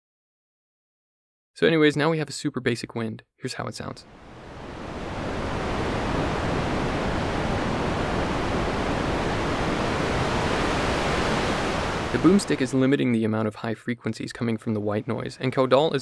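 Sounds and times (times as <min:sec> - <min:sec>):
synthesized wind hiss: 0:04.0 - 0:12.9.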